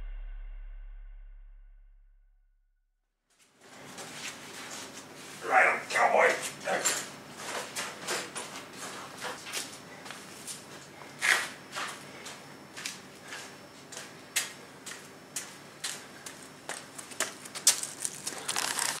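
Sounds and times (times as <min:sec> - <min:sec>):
footsteps on concrete: 0:09.4 - 0:18.3.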